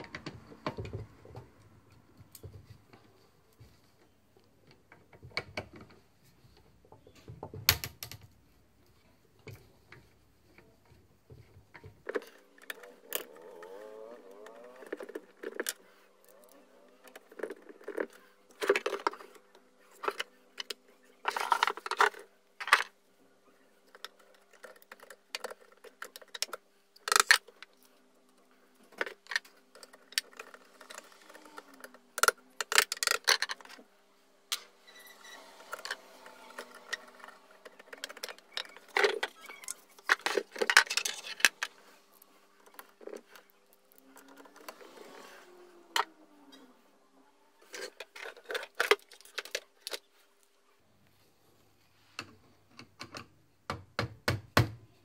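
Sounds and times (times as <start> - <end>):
screwdrivers clicking and scraping: 9.4 - 23.0, 23.8 - 33.9, 34.5 - 46.2, 47.6 - 50.2.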